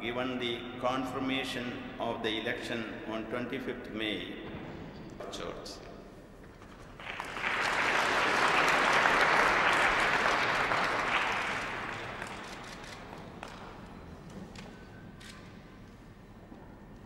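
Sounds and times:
audience applauding: 6.9 - 13.8.

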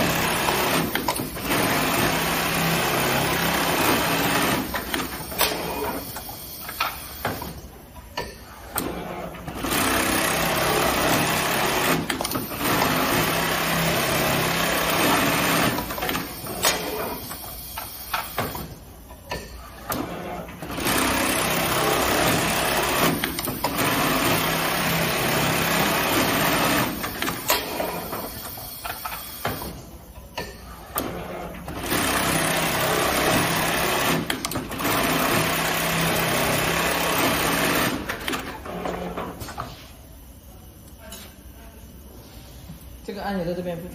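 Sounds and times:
sewing machine stitching: 0.0 - 6.1, 8.8 - 17.3, 19.9 - 28.2, 31.0 - 39.2.

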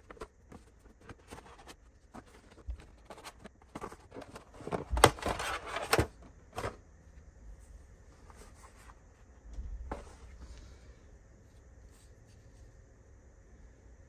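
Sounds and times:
packaging rustling: 0.0 - 6.8.

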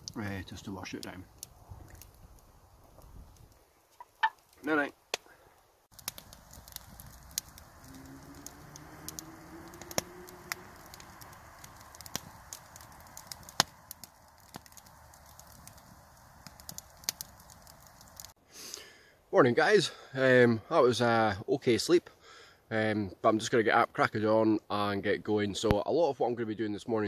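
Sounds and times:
campfire crackling and popping: 0.0 - 19.0.

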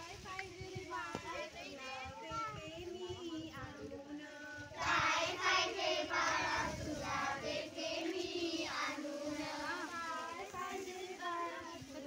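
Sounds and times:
women and girls singing together: 0.0 - 12.0.

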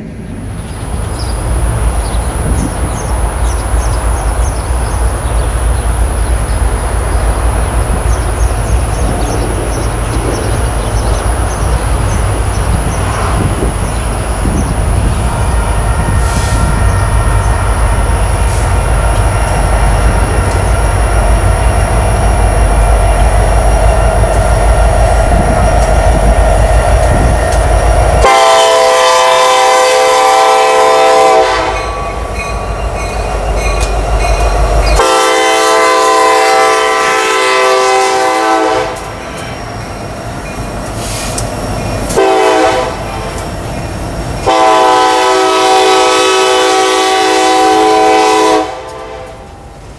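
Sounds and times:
diesel train rumbling: 0.0 - 49.9
locomotive air horn blasts: 28.2 - 32.2, 35.0 - 39.2, 42.1 - 43.4, 44.4 - 49.5.

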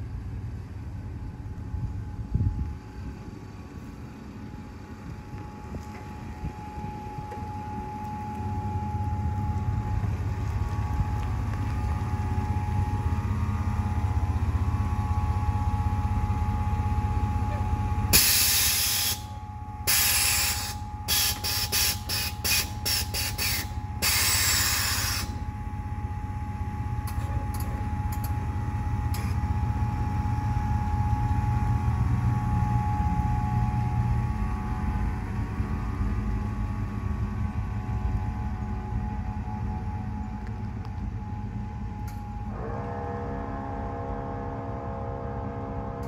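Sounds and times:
steady low running sound: 0.0 - 46.0
air suspension venting hiss: 18.1 - 19.3, 19.9 - 25.4.

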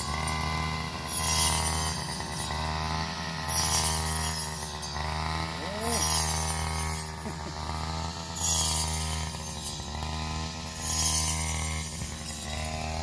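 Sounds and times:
brush cutter engine running: 0.0 - 13.0
blade hissing through stalks: 5.5 - 9.9.

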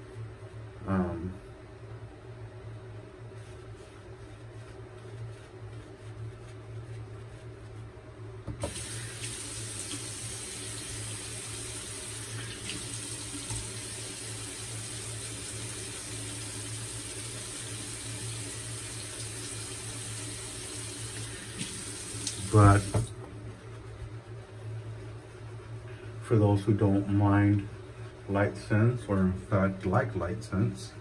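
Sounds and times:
low steady hum: 0.0 - 31.0
tap water running into basin: 8.5 - 23.1.

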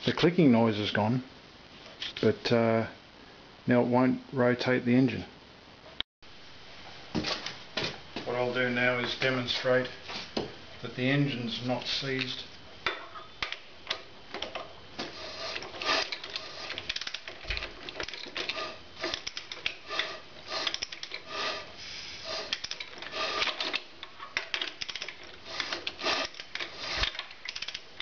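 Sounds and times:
socket ratchet clicking: 15.5 - 21.5, 22.3 - 28.0.

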